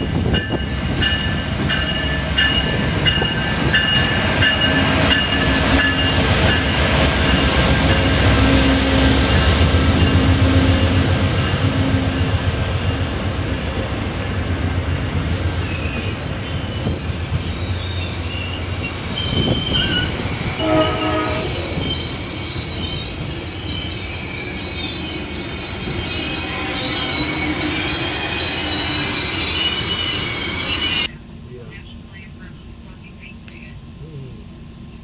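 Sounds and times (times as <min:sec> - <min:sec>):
train wheels squealing on rail: 0:00.0 - 0:12.3, 0:15.3 - 0:31.1
train rumble: 0:00.0 - 0:35.0
short train horn: 0:20.6 - 0:21.8.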